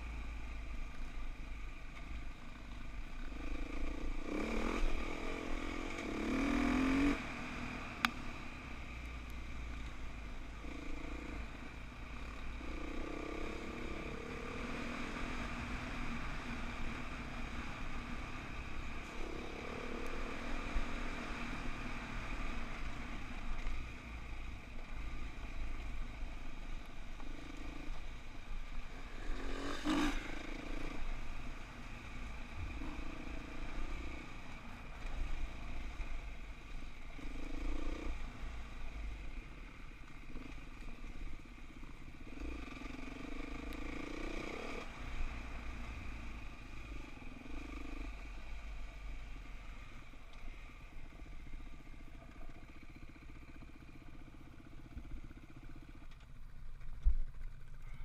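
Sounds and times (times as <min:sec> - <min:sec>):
dirt bike engine revving: 0:03.3 - 0:07.7, 0:28.9 - 0:31.2
rattle over rough ground: 0:52.0 - 0:58.0.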